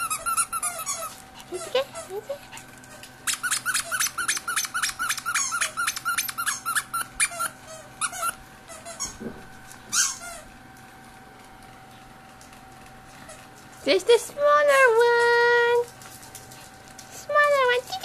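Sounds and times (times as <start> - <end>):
squeaky dog toy squeaking: 3.3 - 9.2, 9.9 - 10.4.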